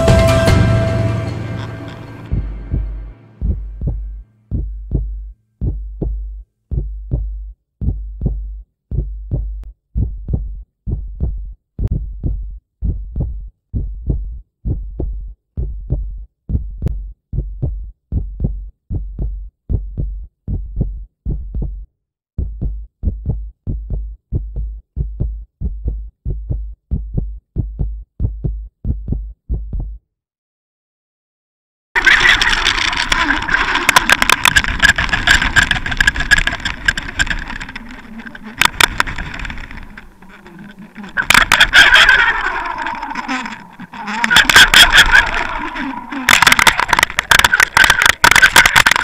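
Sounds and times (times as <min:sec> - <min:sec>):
heartbeat thumps: 0:02.2 - 0:30.0.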